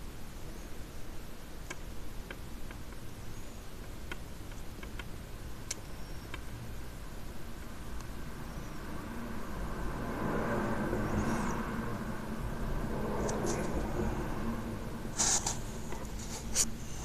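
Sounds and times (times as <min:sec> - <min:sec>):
low background noise: 0:00.0 - 0:17.0
faint high chirps: 0:05.6 - 0:06.7.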